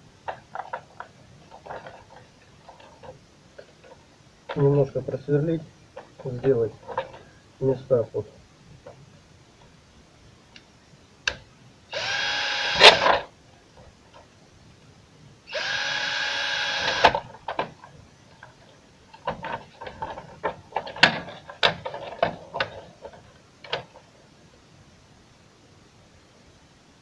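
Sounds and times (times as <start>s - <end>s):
cordless drill drilling plastic: 11.9s - 13.2s, 15.5s - 17.2s.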